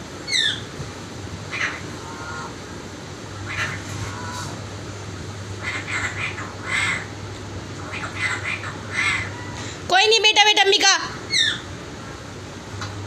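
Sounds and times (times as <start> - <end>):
steady low hum: 0.0 - 13.0
parrot scratchy calls: 3.4 - 4.6, 5.6 - 7.2, 7.8 - 9.8.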